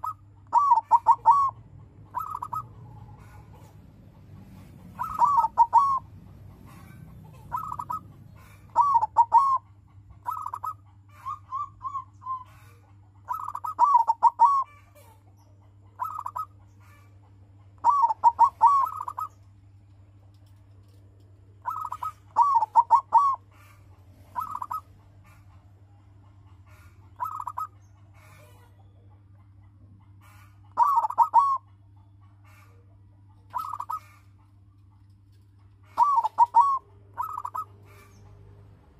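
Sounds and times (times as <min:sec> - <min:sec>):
dove cooing: 0:00.0 - 0:15.1, 0:16.0 - 0:17.1, 0:17.8 - 0:19.4, 0:21.6 - 0:25.5, 0:26.6 - 0:28.7, 0:30.2 - 0:31.7, 0:33.5 - 0:34.4, 0:35.8 - 0:38.5.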